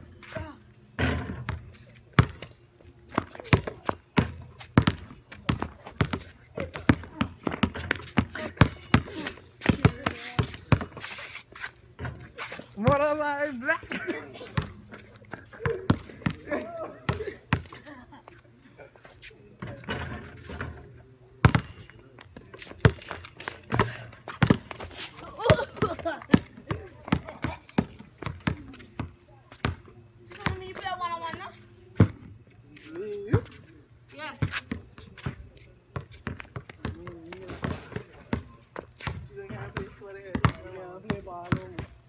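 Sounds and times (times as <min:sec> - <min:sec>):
basketball bouncing on hard court: 0:03.2 - 0:10.9, 0:21.4 - 0:21.8, 0:23.7 - 0:24.8, 0:39.1 - 0:41.9.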